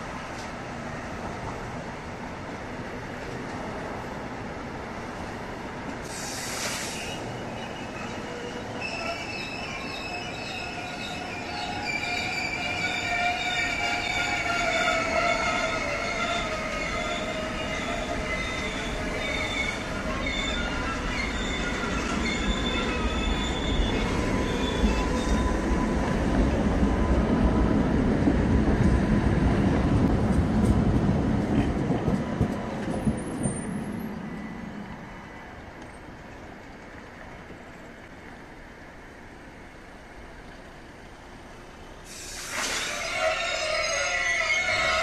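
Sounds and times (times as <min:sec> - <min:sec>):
steel wheel squeal: 0:06.6 - 0:25.5, 0:42.1 - 0:45.0
freight wagons rumbling on rails: 0:07.0 - 0:41.9.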